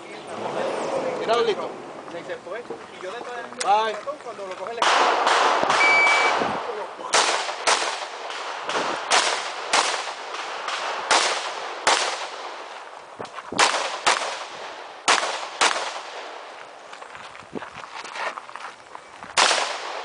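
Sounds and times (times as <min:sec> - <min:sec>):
gunshot echo: 0:04.8 - 0:12.6, 0:13.6 - 0:16.4, 0:19.4 - 0:20.0
rifle shots in quick pairs: 0:04.8 - 0:12.7, 0:13.6 - 0:16.4, 0:19.4 - 0:20.0.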